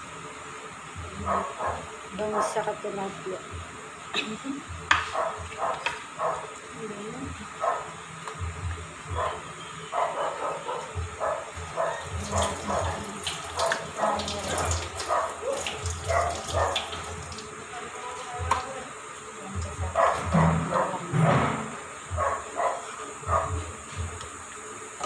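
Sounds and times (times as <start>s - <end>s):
hands washing under water: 12.1s - 17.6s.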